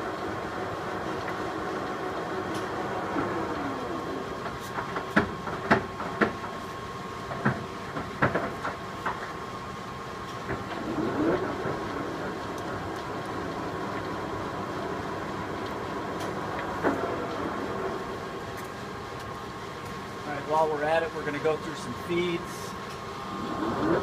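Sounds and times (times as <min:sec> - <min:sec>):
steady machine hum: 0:00.0 - 0:24.0
lathe spindle whine: 0:00.2 - 0:04.5, 0:21.4 - 0:24.0.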